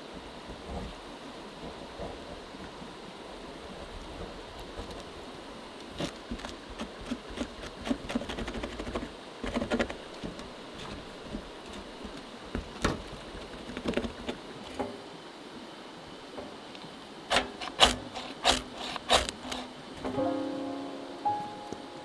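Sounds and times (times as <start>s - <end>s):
knife scraping dry wood: 6.0s - 12.2s, 17.3s - 19.7s
blade scraping rope: 17.3s - 19.7s.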